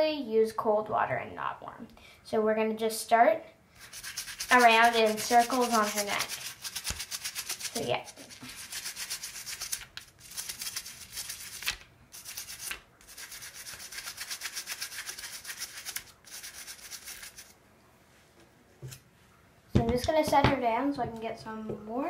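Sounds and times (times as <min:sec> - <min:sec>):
toothbrush scrubbing plastic: 0:03.8 - 0:17.6.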